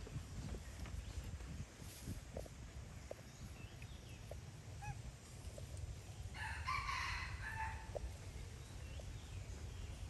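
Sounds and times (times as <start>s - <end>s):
rooster crowing: 6.4s - 7.9s.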